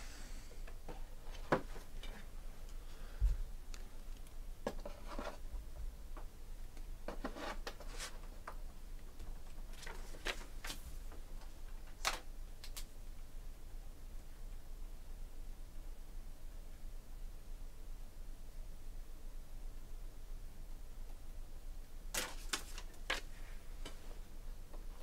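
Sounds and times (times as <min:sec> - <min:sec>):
trading cards and wrappers rustling: 0:09.4 - 0:10.8, 0:22.1 - 0:24.0.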